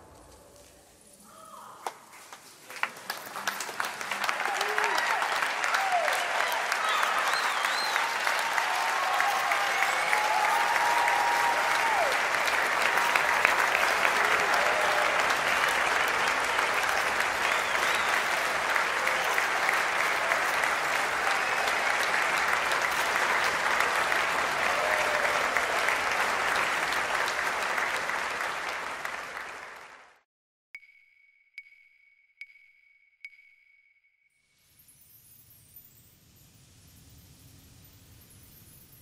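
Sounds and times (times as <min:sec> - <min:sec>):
audience applause: 0:02.1 - 0:30.2.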